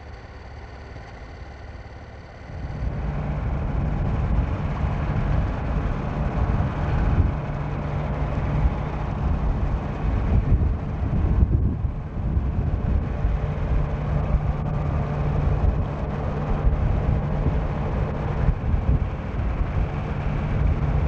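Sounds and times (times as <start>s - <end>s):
low engine rumble: 0.0s - 21.0s.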